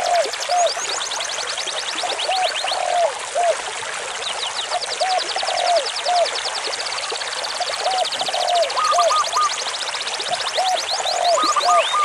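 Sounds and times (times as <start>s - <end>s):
bird whistles and trills: 7.9s - 9.6s, 10.3s - 12.0s.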